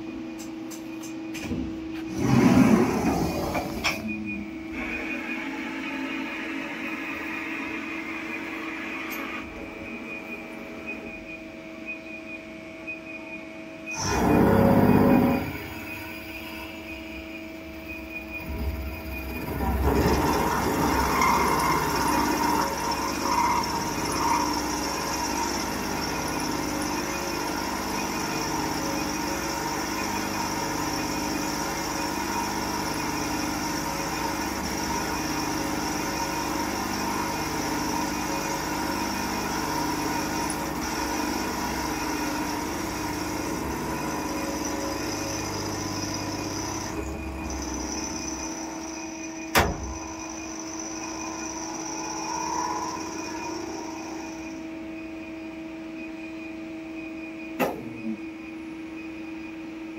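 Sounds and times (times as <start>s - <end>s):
lathe spindle milling steel: 17.8s - 54.9s.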